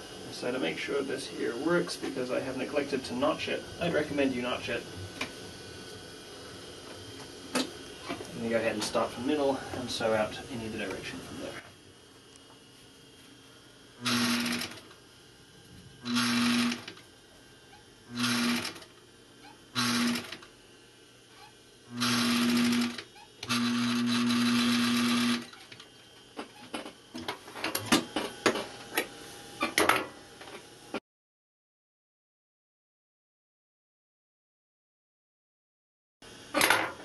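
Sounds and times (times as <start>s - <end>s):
sewing machine stitching: 14.0s - 14.8s, 16.1s - 17.0s, 18.2s - 18.9s, 19.8s - 20.4s, 22.0s - 25.8s.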